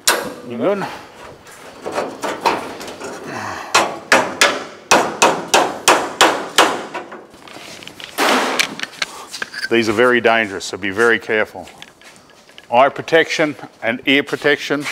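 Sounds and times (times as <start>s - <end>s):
hammer striking steel panel: 3.7s - 7.2s.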